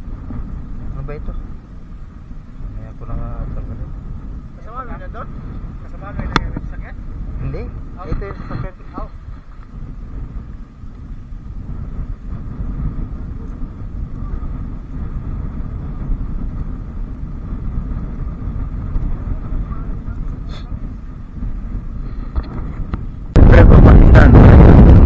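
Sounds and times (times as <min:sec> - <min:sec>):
wind buffeting microphone: 0:00.0 - 0:25.0
loud rush of noise: 0:18.6 - 0:25.0.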